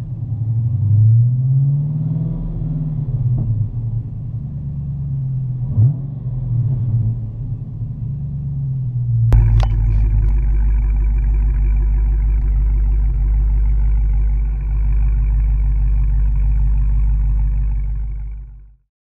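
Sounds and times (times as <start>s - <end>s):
car engine idling: 7.1s - 18.8s.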